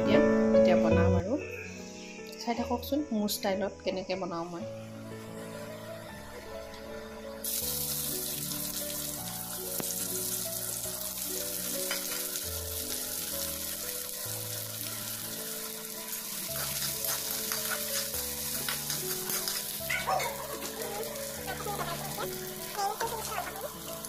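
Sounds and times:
onions sizzling in hot oil: 7.4s - 24.0s
spatula scraping a wok: 16.3s - 20.7s.

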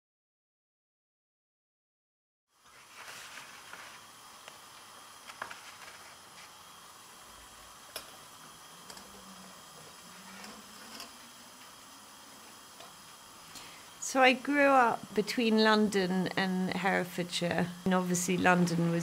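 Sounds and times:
soft steady hiss: 2.6s - 19.0s.

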